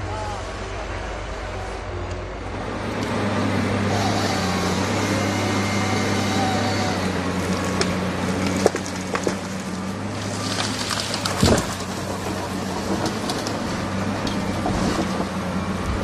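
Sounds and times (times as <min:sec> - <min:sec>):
high hydraulic whine: 0:00.0 - 0:07.7
diesel engine under load: 0:00.0 - 0:16.0
wood cracking: 0:07.4 - 0:15.4
tree crashing down: 0:07.5 - 0:15.4.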